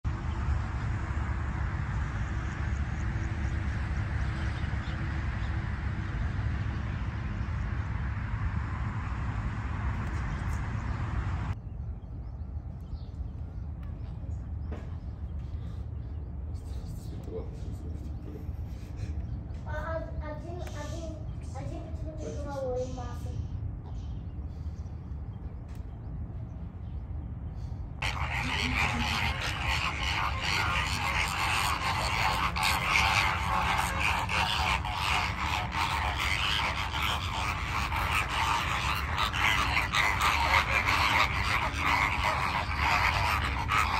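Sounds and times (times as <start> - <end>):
rushing outdoor noise with rumble: 0.0 - 43.9
flamingos calling: 28.0 - 43.9.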